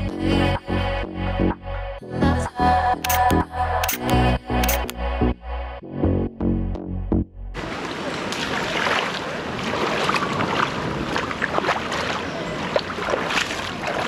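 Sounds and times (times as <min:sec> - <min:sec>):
water lapping and splashing: 0:07.6 - 0:14.0.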